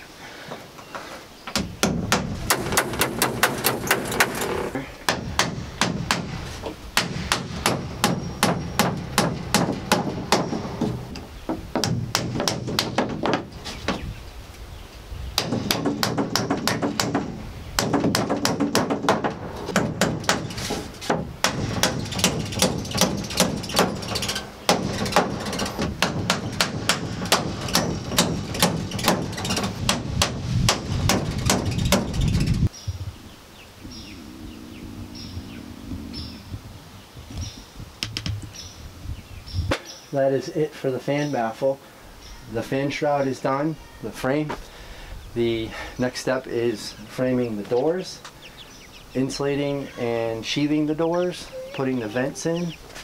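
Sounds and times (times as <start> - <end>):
hammer driving nails into wood: 1.5 - 6.3, 15.4 - 32.1.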